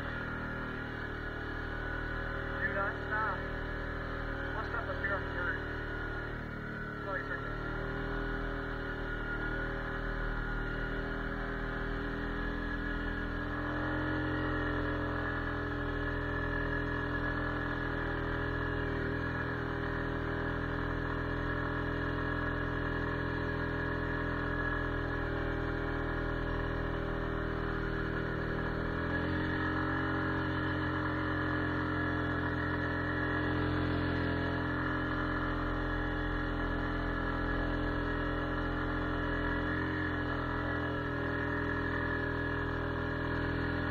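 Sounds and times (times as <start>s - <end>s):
quad bike engine droning: 0.0s - 43.9s.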